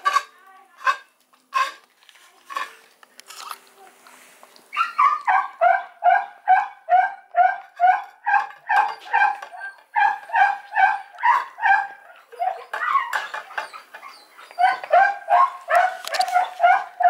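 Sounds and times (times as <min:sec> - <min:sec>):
puppy crying: 0:04.7 - 0:17.0.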